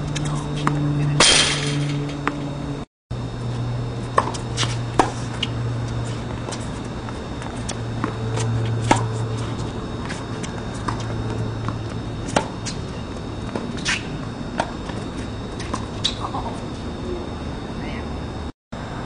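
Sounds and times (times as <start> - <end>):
steady low hum: 0.0 - 19.0
rackets striking tennis ball: 0.2 - 2.5
tennis ball bouncing: 0.2 - 2.6, 4.0 - 16.6.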